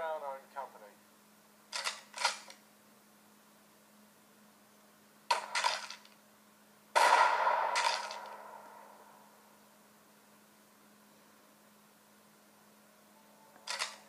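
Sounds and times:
clanging metal hits: 7.0 - 8.5.

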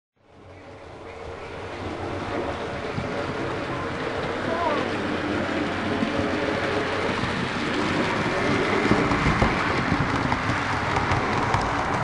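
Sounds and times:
model train rumbling: 0.2 - 12.0
clicking over rail joints: 5.4 - 12.0.

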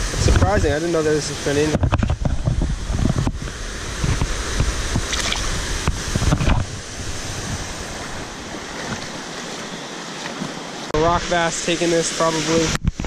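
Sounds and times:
wind buffeting microphone: 0.0 - 9.9
creek water rushing: 0.0 - 13.0
water splashes and knocks: 1.6 - 6.8, 7.4 - 11.0.

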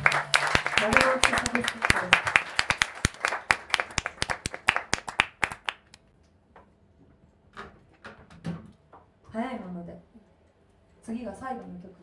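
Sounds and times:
audience clapping: 0.0 - 6.0.

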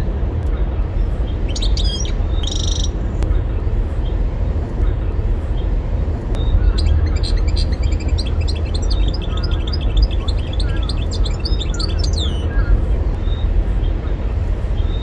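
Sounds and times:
steady low rumble: 0.0 - 15.0
goldfinch twittering song: 1.4 - 3.0, 6.4 - 13.5.

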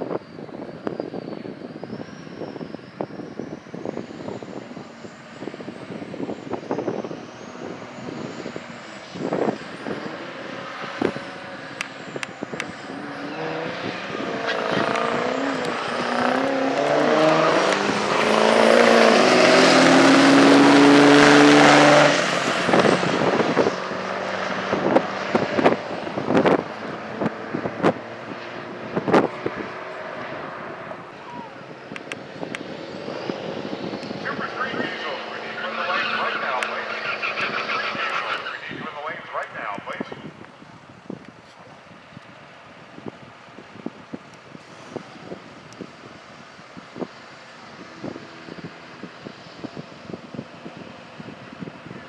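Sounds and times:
diesel truck engines accelerating: 0.0 - 52.0.

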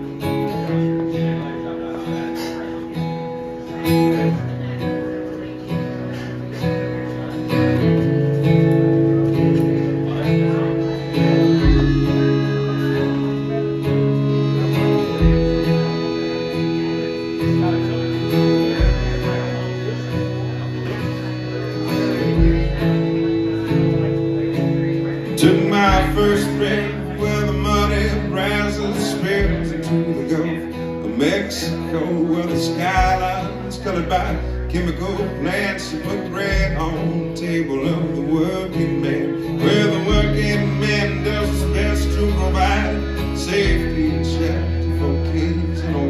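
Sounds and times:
live country band playing: 0.0 - 46.0
melodic lead line: 7.1 - 46.0.

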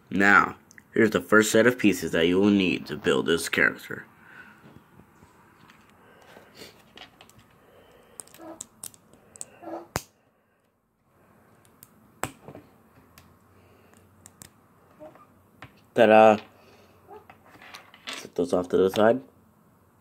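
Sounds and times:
plastic bricks clicking: 8.2 - 9.5.

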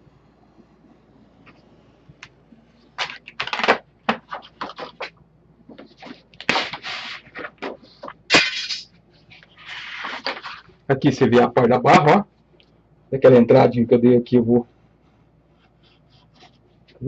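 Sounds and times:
card stock scraping and rustling: 3.0 - 5.2, 5.8 - 10.7.

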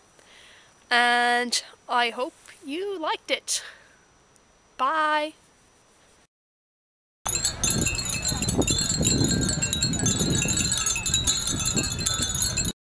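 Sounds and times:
low wind rumble: 7.3 - 12.8
wind chimes jingling: 7.3 - 12.8.

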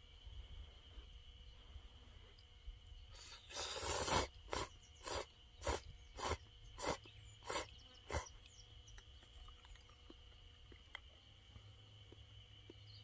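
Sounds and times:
high insect tone: 0.0 - 13.0
eating sounds: 3.2 - 13.0
person slurping noodles: 3.5 - 8.2.

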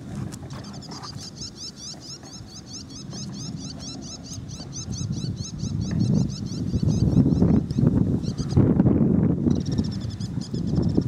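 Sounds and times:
bird chirping: 0.6 - 8.7.

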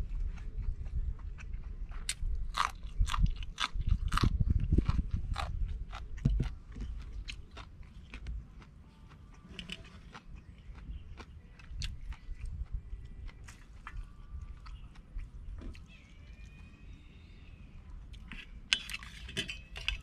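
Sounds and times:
person crunching raw vegetables: 0.6 - 16.0.

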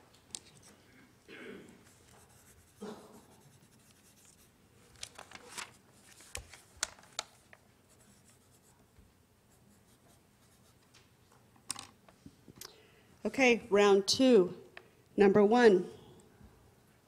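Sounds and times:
faint paper rustling: 1.8 - 9.1.

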